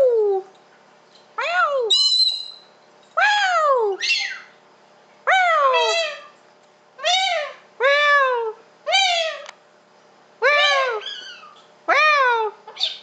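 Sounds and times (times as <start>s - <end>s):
cockatoo calling: 1.4s - 2.6s, 3.2s - 4.6s, 5.3s - 6.4s, 7.0s - 9.5s, 10.4s - 13.0s.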